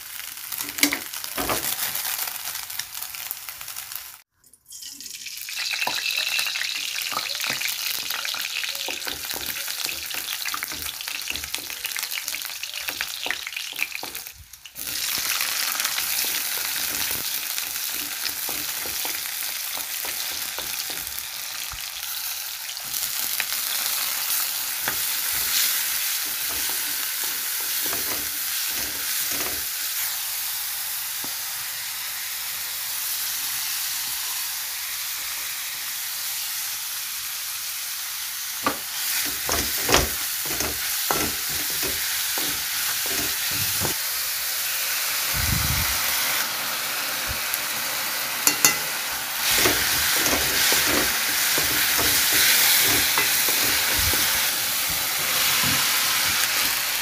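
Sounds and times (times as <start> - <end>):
vegetables sizzling in oil: 0.0 - 57.0
spatula scraping a wok: 13.7 - 21.3, 24.2 - 30.1, 38.7 - 44.0, 48.4 - 56.8.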